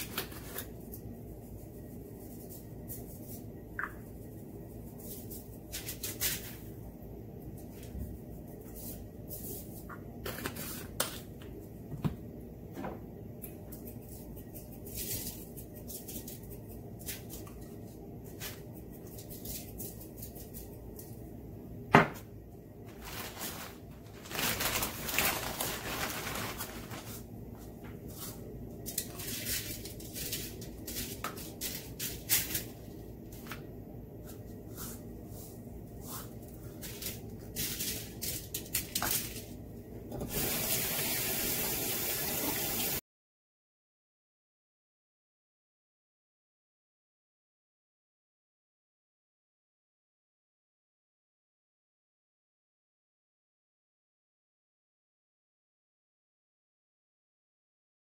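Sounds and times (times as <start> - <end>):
spice shaker shaking: 13.7 - 21.2
foil crinkling: 22.9 - 27.3, 28.8 - 33.5.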